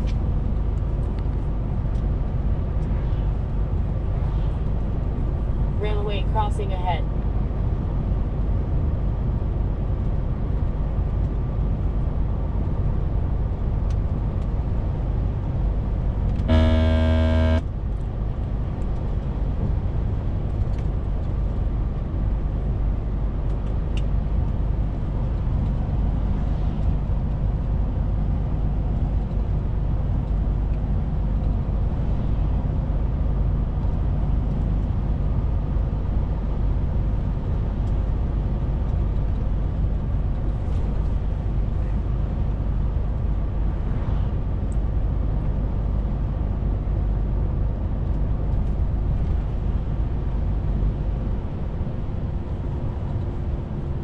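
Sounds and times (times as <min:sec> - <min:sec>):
truck horn: 0:16.5 - 0:17.6.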